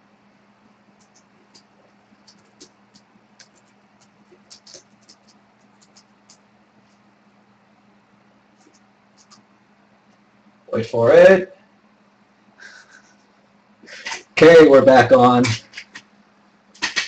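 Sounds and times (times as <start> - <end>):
low steady hum: 0.0 - 17.0
small clicks and scratches: 1.0 - 7.1, 8.6 - 9.4, 16.8 - 17.0.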